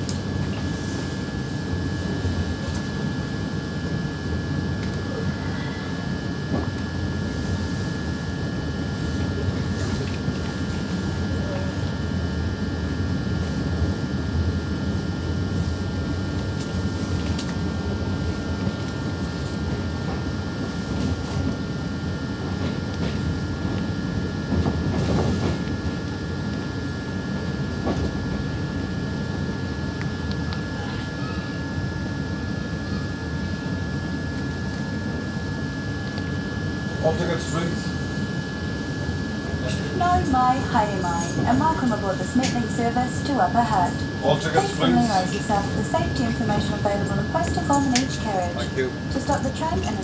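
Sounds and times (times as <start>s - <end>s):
high steady whine: 0.0s - 50.0s
train running rumble: 0.0s - 50.0s.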